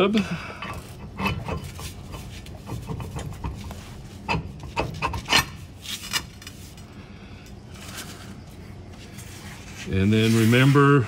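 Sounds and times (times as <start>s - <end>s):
metal clicking and rubbing: 0.6s - 6.8s.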